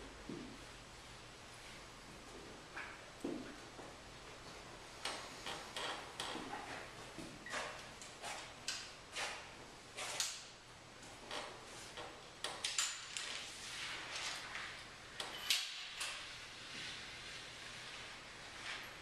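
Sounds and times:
footsteps on a floor: 0:01.6 - 0:04.7.

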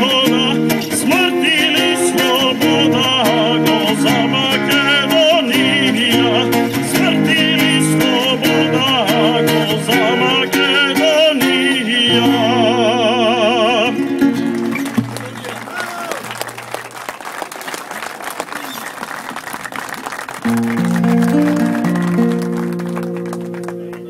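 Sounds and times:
man singing: 0:00.0 - 0:14.2
acoustic guitar strumming: 0:00.0 - 0:16.8, 0:20.4 - 0:24.0.

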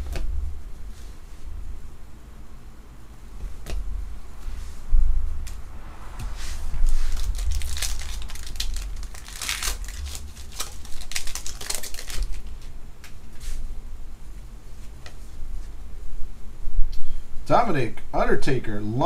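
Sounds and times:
foil wrapper crinkling and tearing: 0:06.9 - 0:12.7.

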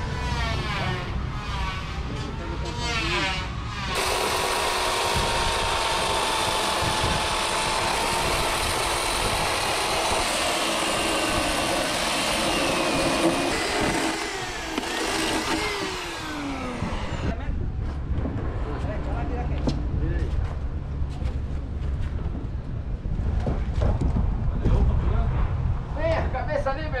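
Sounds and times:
electric saw cutting wood: 0:00.0 - 0:17.4.

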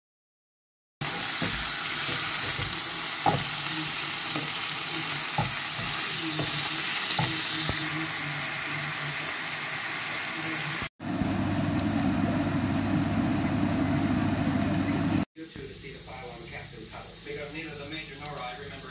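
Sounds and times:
food sizzling in a frying pan: 0:01.0 - 0:18.9.

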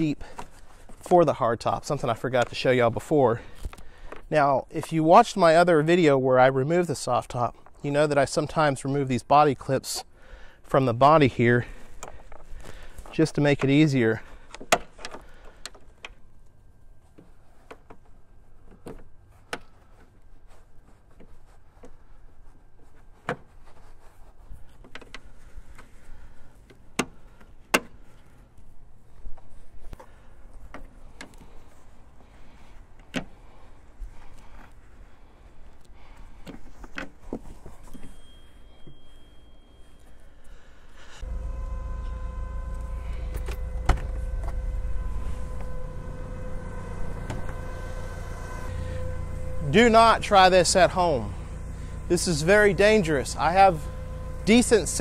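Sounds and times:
steady whine: 0:37.9 - 0:55.0
forklift engine running: 0:41.2 - 0:55.0.

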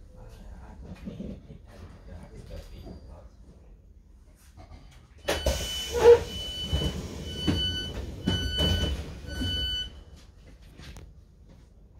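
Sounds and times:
train door warning beeps: 0:05.2 - 0:10.2.

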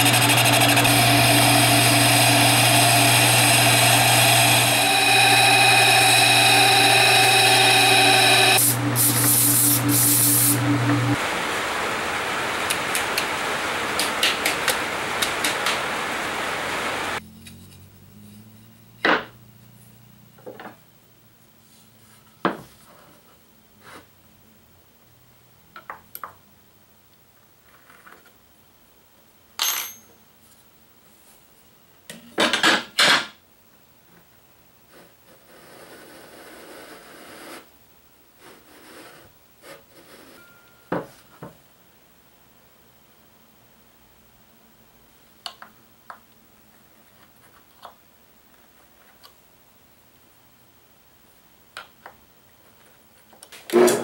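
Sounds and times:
loud steady noise: 0:00.0 - 0:17.2.

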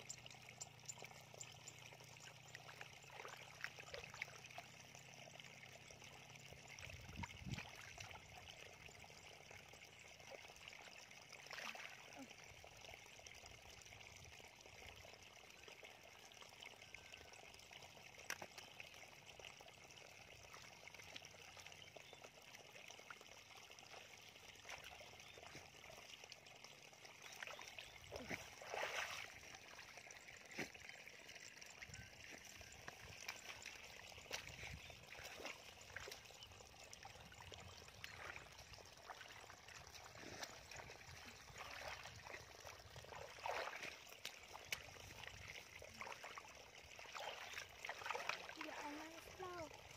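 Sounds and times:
hands sloshing in muddy water: 0:11.4 - 0:12.3, 0:27.2 - 0:30.9, 0:32.2 - 0:36.5, 0:37.9 - 0:49.4.

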